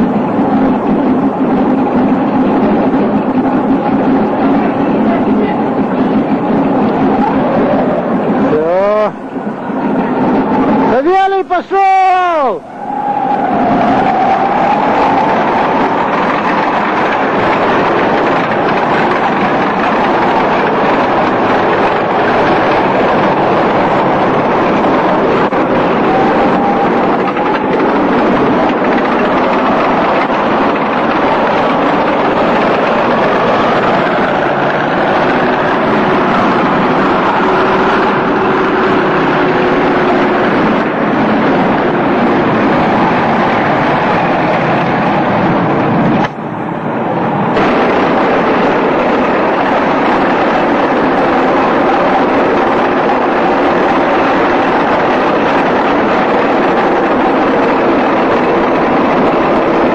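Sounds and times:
vehicle engine roaring: 0.0s - 59.9s.

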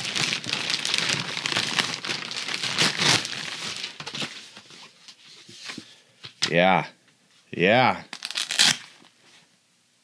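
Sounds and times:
plastic packaging crinkling: 0.0s - 4.8s, 8.1s - 9.1s.

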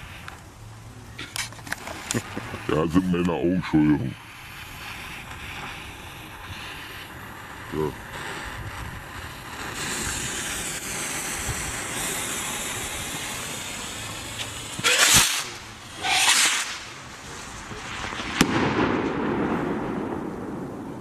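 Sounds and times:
rockets whooshing off: 0.0s - 0.6s, 1.3s - 21.0s
fuses hissing: 0.0s - 18.3s
rocket bursting with sharp bang: 4.3s - 21.0s.

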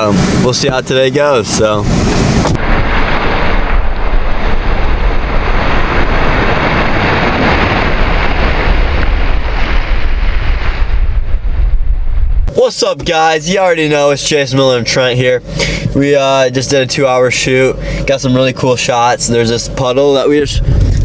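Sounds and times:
wind buffeting microphone: 0.0s - 12.5s, 20.4s - 21.0s.

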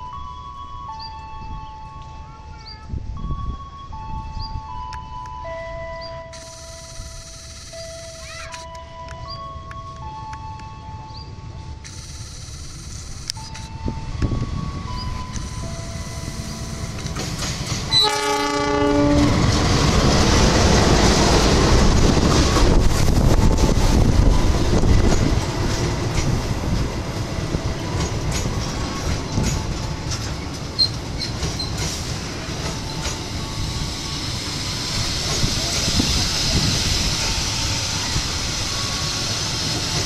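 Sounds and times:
train rumbling past: 0.0s - 40.0s
wheels clicking over rail joints: 16.7s - 18.1s, 21.6s - 33.4s
train horn blast: 17.9s - 19.4s.

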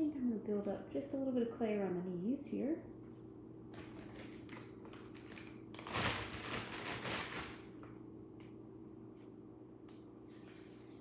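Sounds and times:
steady low hum: 0.0s - 11.0s
hands rolling soft clay: 9.1s - 11.0s.

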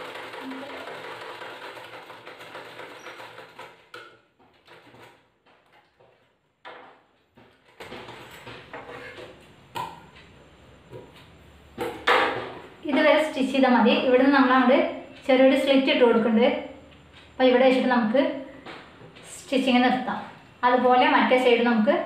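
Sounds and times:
sewing machine stitching: 0.0s - 4.0s.

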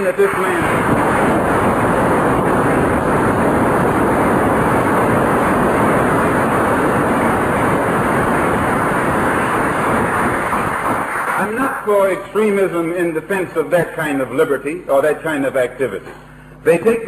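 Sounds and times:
audience applauding: 0.0s - 1.3s, 9.0s - 12.1s.

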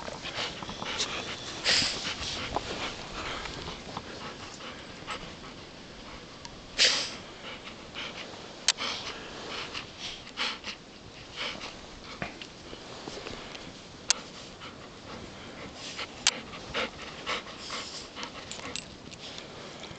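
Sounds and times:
rustling and crunching in snow: 0.0s - 7.1s, 11.0s - 18.1s
dogs panting: 0.0s - 19.9s.

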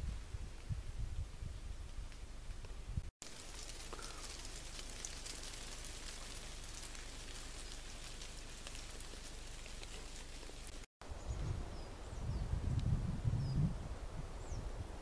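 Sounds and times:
light rain on foliage: 2.0s - 11.3s.

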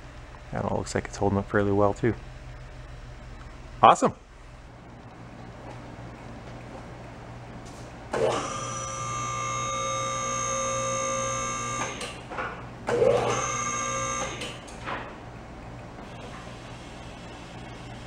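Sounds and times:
hydraulic pump motor humming: 8.1s - 14.8s.

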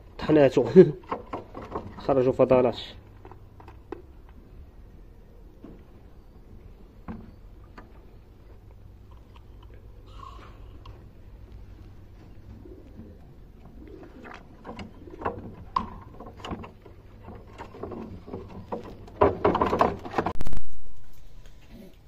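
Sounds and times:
pigeons cooing: 4.4s - 19.2s.

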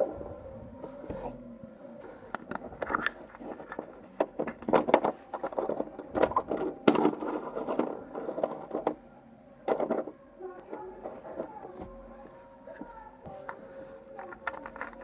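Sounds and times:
plastic capsule clicks and clatters: 2.4s - 9.0s, 14.2s - 15.0s.

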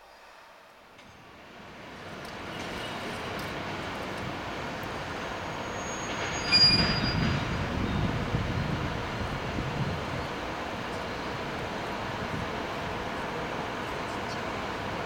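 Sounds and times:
diesel locomotive rumble: 2.8s - 15.0s
short high-pitched squeal: 5.5s - 7.6s.

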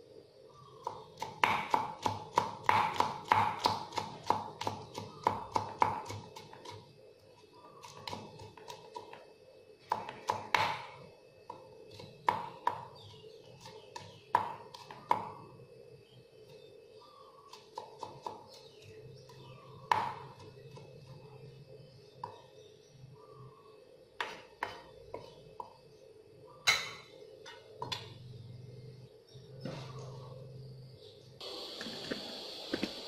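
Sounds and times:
knife chopping on wooden board: 1.2s - 6.8s, 9.9s - 10.9s, 17.5s - 18.5s.

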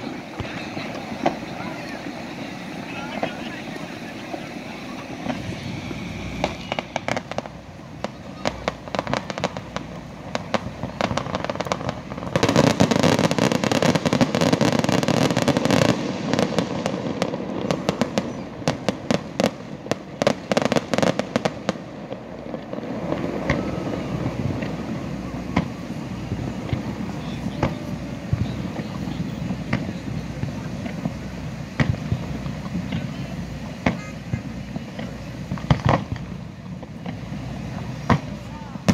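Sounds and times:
fireworks bursting: 0.0s - 38.9s.

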